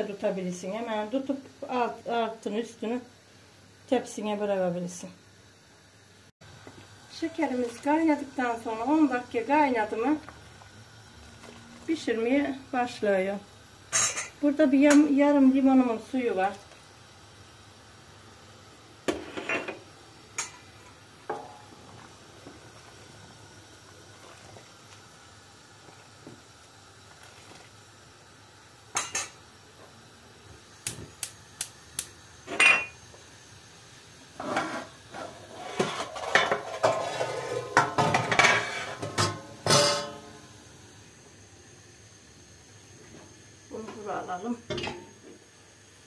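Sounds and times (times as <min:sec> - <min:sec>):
metal pot and utensils clattering: 0:35.6 - 0:40.2.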